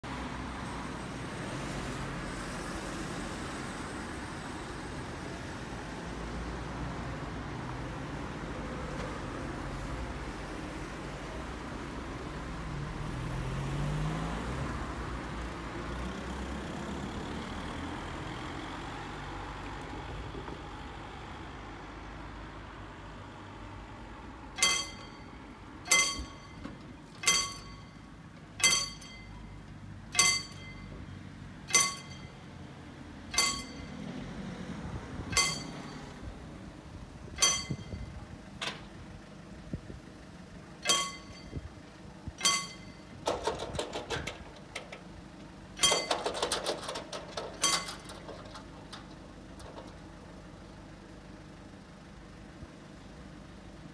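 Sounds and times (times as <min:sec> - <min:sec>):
car passing: 0:00.1 - 0:26.7
level crossing bell ringing: 0:24.6 - 0:31.1, 0:31.7 - 0:32.6, 0:33.3 - 0:34.1, 0:35.3 - 0:36.2, 0:37.4 - 0:38.2, 0:40.8 - 0:41.7, 0:42.4 - 0:43.2, 0:45.8 - 0:46.3, 0:47.6 - 0:48.1.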